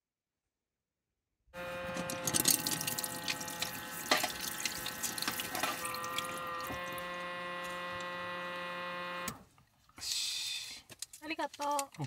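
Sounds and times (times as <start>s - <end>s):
water running and splashing: 1.7s - 8.2s.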